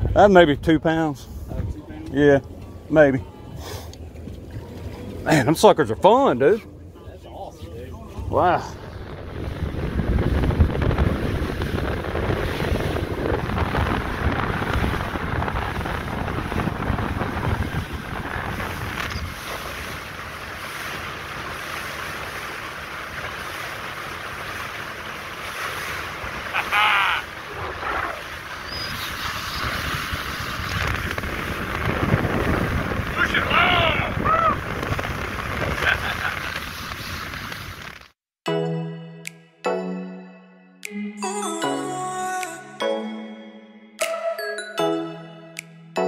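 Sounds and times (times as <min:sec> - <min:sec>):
wind buffeting microphone: 0:00.0 - 0:05.2, 0:07.9 - 0:37.8
water rushing along hull: 0:00.0 - 0:38.1
outboard motor hum: 0:01.2 - 0:38.0.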